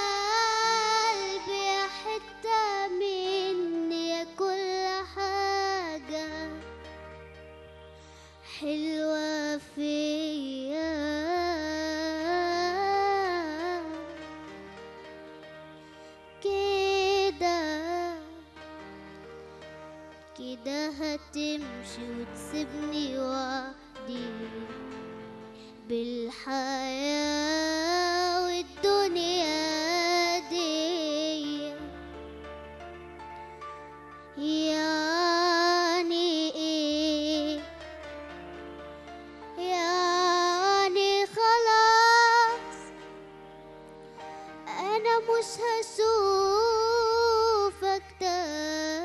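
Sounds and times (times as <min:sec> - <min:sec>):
boy singing into a microphone: 0:00.0 - 0:06.6, 0:08.4 - 0:14.2, 0:16.4 - 0:18.5, 0:20.4 - 0:31.9, 0:34.4 - 0:37.8, 0:39.6 - 0:43.0, 0:44.6 - 0:49.0
quiet instrumental accompaniment: 0:00.0 - 0:49.0.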